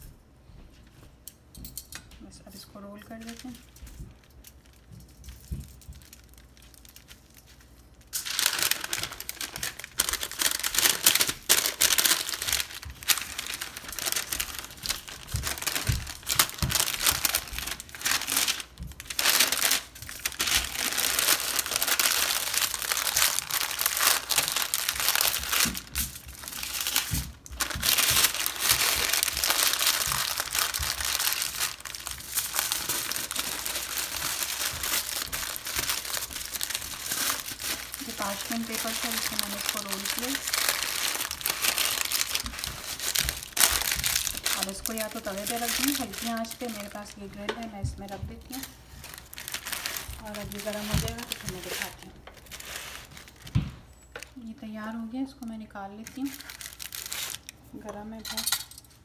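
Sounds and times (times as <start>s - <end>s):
paper and foil crinkling: 2.6s - 58.7s.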